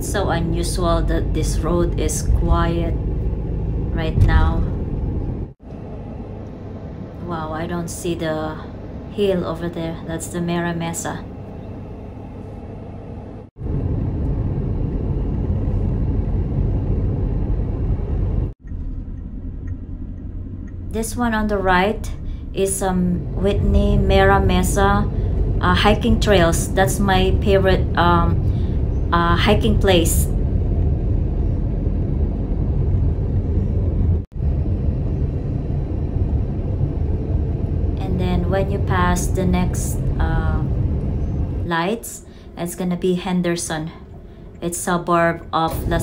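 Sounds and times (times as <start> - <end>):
road and wind noise in car: 0.0 - 6.3, 13.3 - 41.8.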